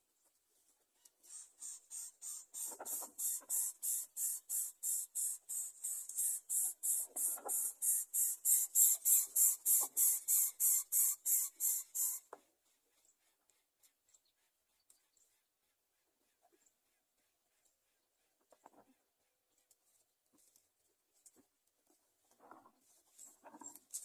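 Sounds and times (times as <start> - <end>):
nestlings hissing: 1.3 - 12.2.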